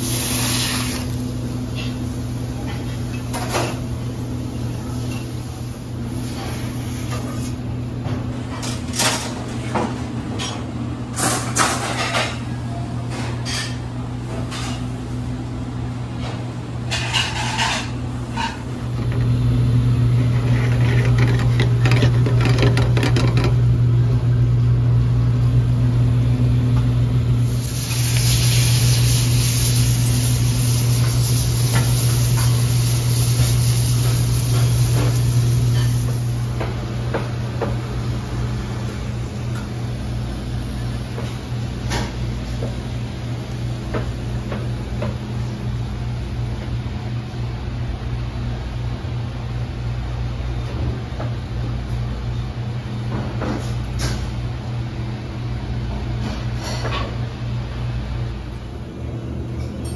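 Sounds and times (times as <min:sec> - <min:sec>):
low hum of running equipment: 0:00.0 - 0:59.9
clatter of pans and dishes: 0:02.6 - 0:03.8, 0:08.1 - 0:12.5, 0:13.1 - 0:14.9, 0:16.2 - 0:19.3, 0:20.3 - 0:23.6, 0:56.2 - 0:57.2.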